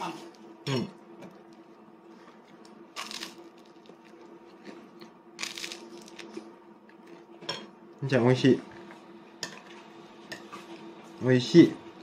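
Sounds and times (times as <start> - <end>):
faint steady hum: 0.0 - 12.0
crisp bread crackling on plate: 3.0 - 4.1, 5.4 - 6.4.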